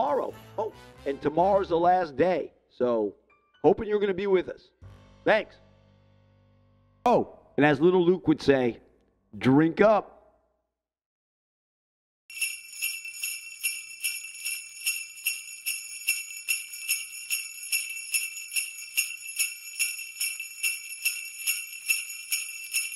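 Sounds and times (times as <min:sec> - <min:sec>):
jingle bells shaken: 0:12.3 - 0:22.9.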